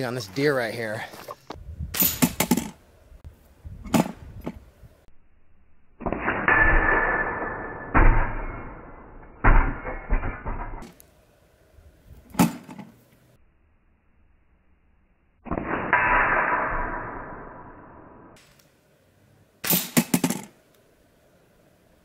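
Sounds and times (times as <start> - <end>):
pellets striking steel target: 2.0 - 2.7, 6.0 - 11.0, 15.4 - 18.4, 19.6 - 20.5.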